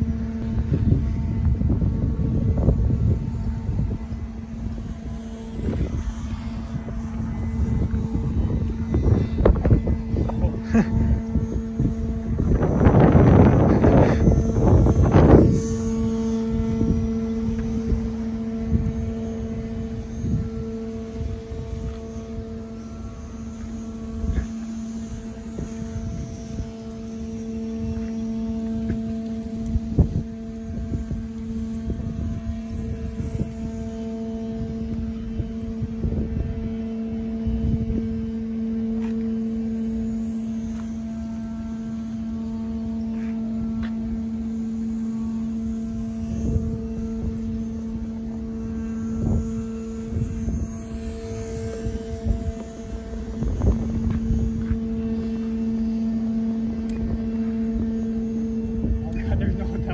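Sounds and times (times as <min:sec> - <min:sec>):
steady low hum: 0:00.0 - 0:59.9
wind buffeting microphone: 0:00.0 - 0:59.9.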